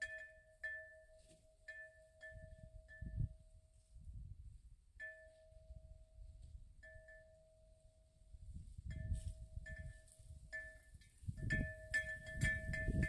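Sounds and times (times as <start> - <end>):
wind rumble on microphone: 2.3 - 4.8, 8.2 - 13.0
wind chime ringing: 5.0 - 6.2, 8.9 - 13.0.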